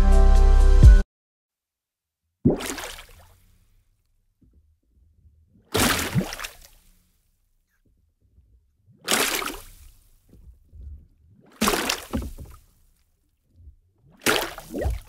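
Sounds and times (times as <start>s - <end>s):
water sloshing and splashing: 2.5s - 3.8s, 4.4s - 15.0s.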